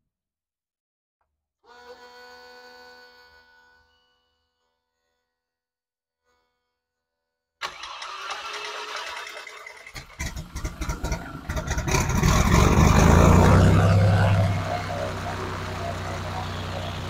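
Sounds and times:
starter cranking unevenly: 0:07.6 - 0:17.0
aircraft engine running: 0:10.0 - 0:17.0.

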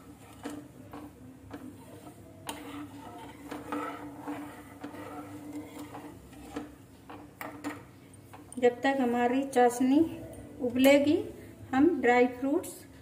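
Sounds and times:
metal ladle scraping sugar in pan: 0:00.0 - 0:07.8.

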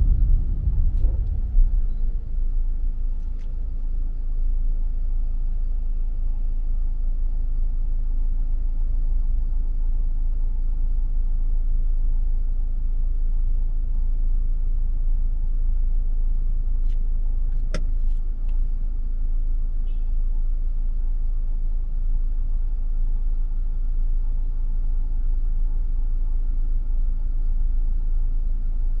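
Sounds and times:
car driving on road rumble: 0:00.0 - 0:07.6.

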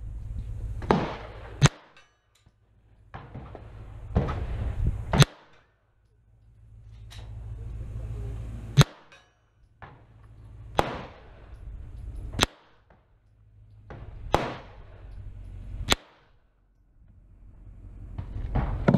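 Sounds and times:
pistol shots: 0:00.8 - 0:02.2, 0:03.1 - 0:05.8, 0:08.8 - 0:13.2, 0:13.8 - 0:16.5.

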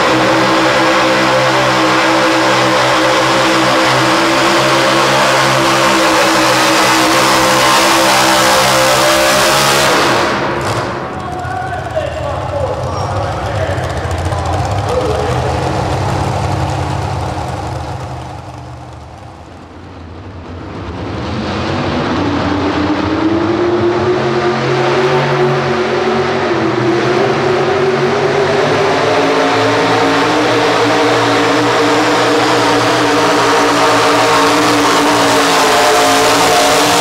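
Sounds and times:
another tractor engine running: 0:00.0 - 0:22.4
pulling tractor engine under load: 0:10.6 - 0:19.4.

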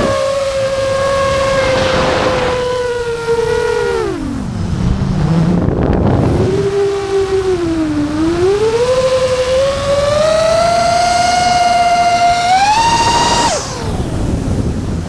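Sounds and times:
quadcopter motors whining: 0:00.0 - 0:15.0
rush of air: 0:01.4 - 0:03.6.

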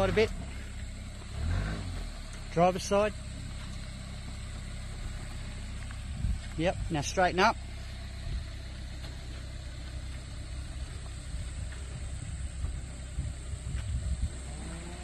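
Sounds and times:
car engine running at low revs: 0:00.0 - 0:15.0.

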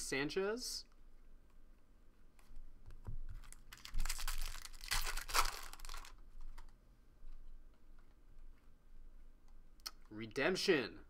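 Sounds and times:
foil wrapper tearing and crinkling: 0:03.4 - 0:06.2.

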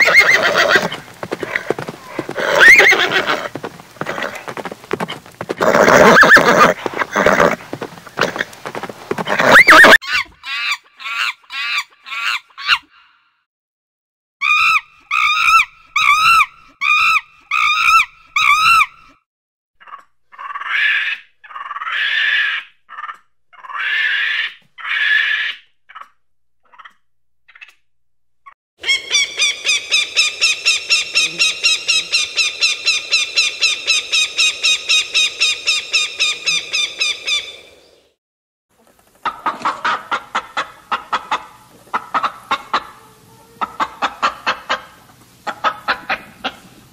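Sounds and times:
hawk calling rapidly: 0:00.0 - 0:04.5, 0:09.3 - 0:12.8, 0:28.8 - 0:37.6
monkeys screeching: 0:00.0 - 0:04.6, 0:05.6 - 0:07.6, 0:09.3 - 0:12.8, 0:14.4 - 0:18.9, 0:19.8 - 0:26.1, 0:28.8 - 0:37.5
horse whinny: 0:00.0 - 0:08.5, 0:09.2 - 0:10.0.

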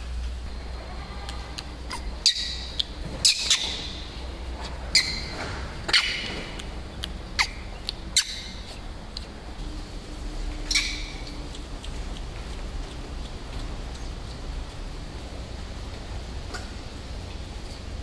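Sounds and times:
low steady hum: 0:00.0 - 0:18.0
monkey squealing: 0:00.9 - 0:08.9, 0:10.6 - 0:11.3.

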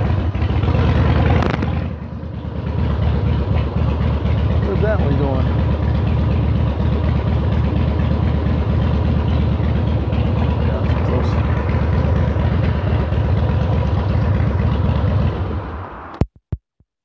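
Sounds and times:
motorcycle engine idling: 0:00.0 - 0:15.8.

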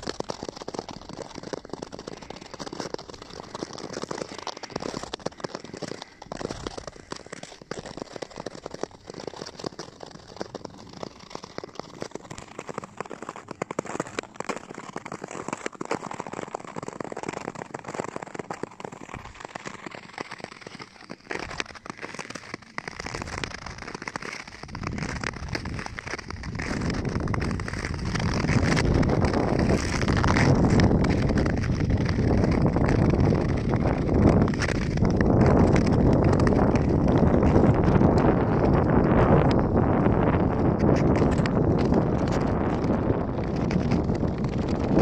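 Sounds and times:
skate blades scraping ice: 0:00.0 - 0:45.0
wind on microphone: 0:24.6 - 0:45.0.

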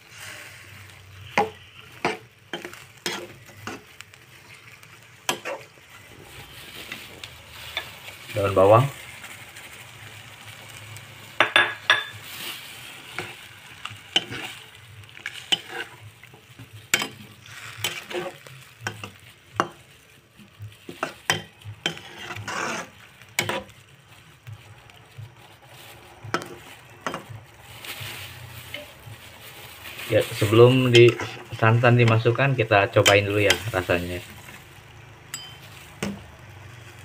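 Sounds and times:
spatula scraping wok: 0:00.0 - 0:37.0.

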